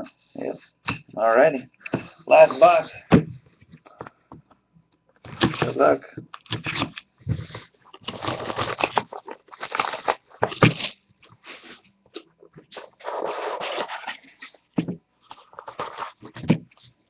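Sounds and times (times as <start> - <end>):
plastic wrap crinkling and tearing: 6.4 - 11.7
cardboard scraping: 6.5 - 11.8, 12.6 - 17.0.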